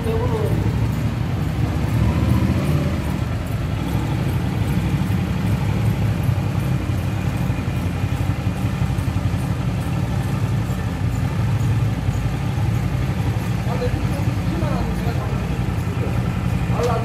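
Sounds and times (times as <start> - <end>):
motorcycle engine running at low speed: 0.0 - 17.0.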